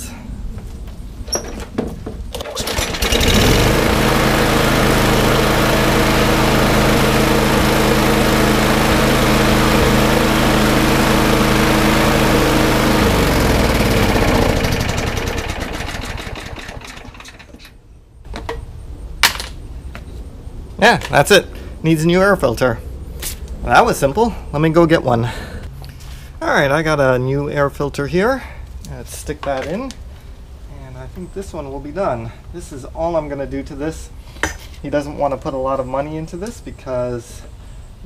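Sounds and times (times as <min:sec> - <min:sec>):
lawn mower engine running: 0:02.3 - 0:17.7
mower starter pull: 0:02.3 - 0:17.8.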